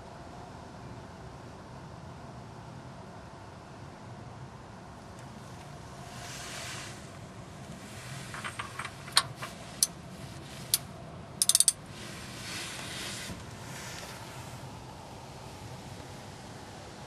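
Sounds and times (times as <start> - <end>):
ratchet clicking: 11.4 - 11.8.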